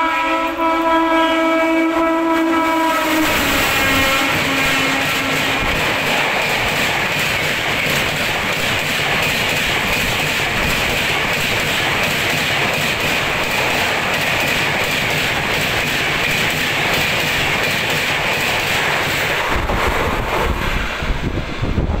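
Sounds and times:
train wheels rushing on rails: 0.0s - 22.0s
clatter over rail joints: 3.9s - 20.6s
gusty low rumble: 19.3s - 22.0s.

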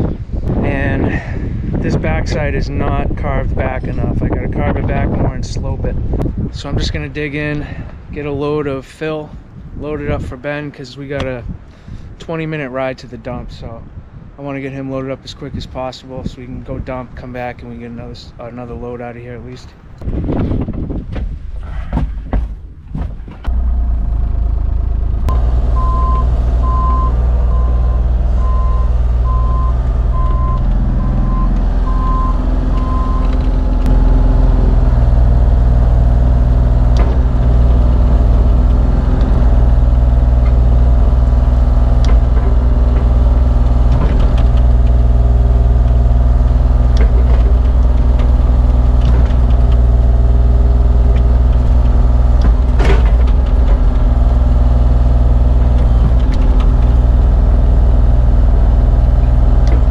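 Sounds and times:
excavator diesel engine running: 23.3s - 59.9s
repeating warning beep: 25.8s - 33.3s.

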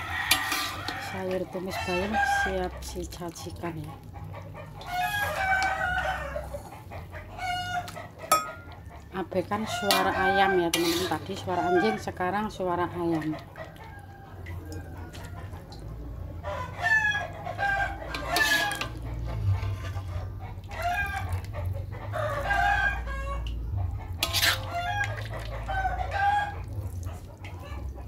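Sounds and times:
rooster crowing: 0.0s - 2.6s, 4.9s - 6.6s, 11.5s - 12.1s, 16.5s - 18.8s, 22.1s - 23.5s, 24.5s - 26.7s.

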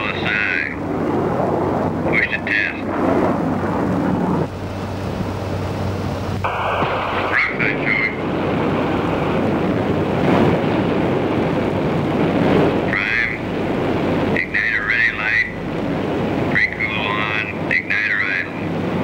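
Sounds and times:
garbled radio voice: 0.0s - 0.8s, 2.1s - 2.9s, 6.6s - 8.2s, 12.8s - 13.5s, 14.3s - 15.6s, 16.5s - 18.7s
aircraft roar over radio: 0.0s - 19.0s.

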